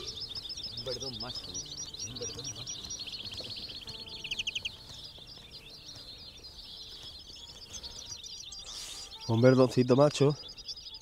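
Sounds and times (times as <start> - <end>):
fast loud bird trill: 0.0 - 11.0
finches twittering: 0.0 - 11.0.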